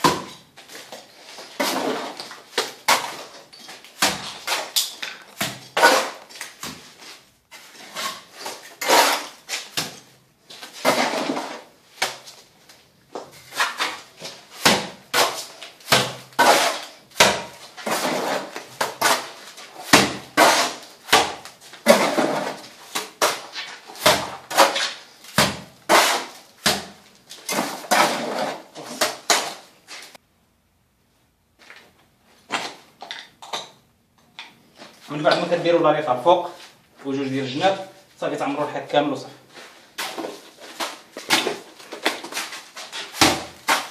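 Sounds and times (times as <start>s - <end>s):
mortar slapping onto wall: 0.0s - 7.0s, 7.6s - 12.4s, 13.2s - 29.6s, 40.0s - 43.9s.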